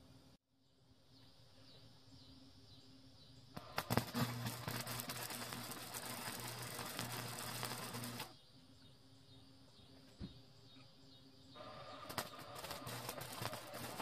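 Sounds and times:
low electrical buzz: 0.0s - 14.0s
arc welding crackling sizzle: 3.4s - 8.4s, 11.5s - 14.0s
welding arc popping: 3.5s - 8.4s, 11.6s - 14.0s.

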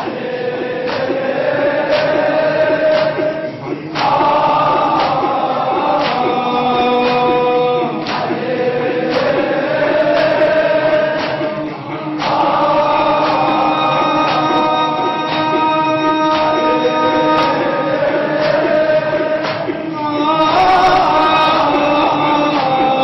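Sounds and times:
men chanting into microphones: 0.0s - 23.0s
chest beating slaps: 0.8s - 1.3s, 1.9s - 6.4s, 7.0s - 13.6s, 18.4s - 19.9s.

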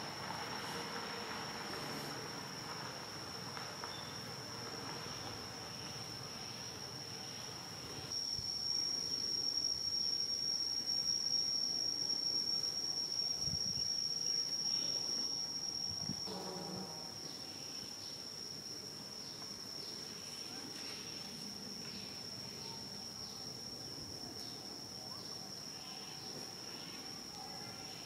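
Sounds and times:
insects buzzing high-pitched: 0.0s - 28.0s.

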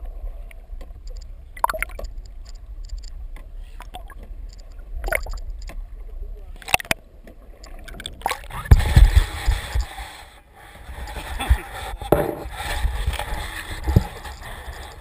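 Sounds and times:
water sloshing: 6.6s - 9.0s.

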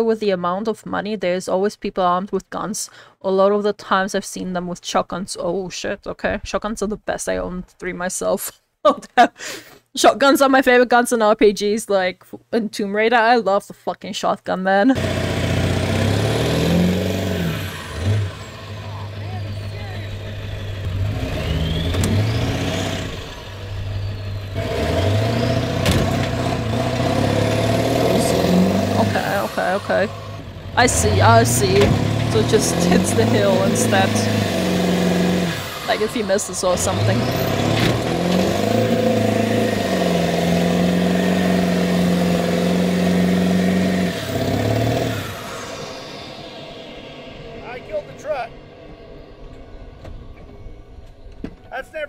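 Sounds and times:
truck engine under load: 15.0s - 47.0s.

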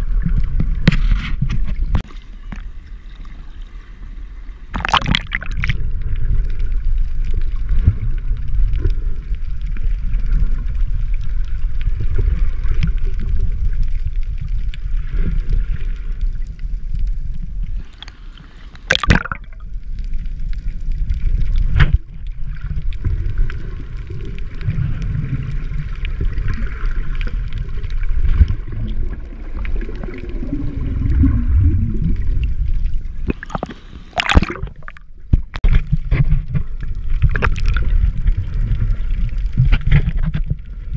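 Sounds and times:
muffled underwater water rumble: 0.0s - 40.9s
short splashes: 4.7s - 5.8s, 18.9s - 19.6s, 33.2s - 35.0s.

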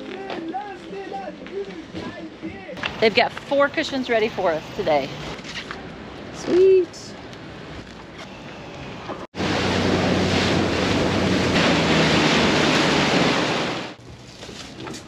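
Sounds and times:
outboard motor humming: 9.4s - 14.0s
water hissing and splashing: 9.4s - 14.0s.

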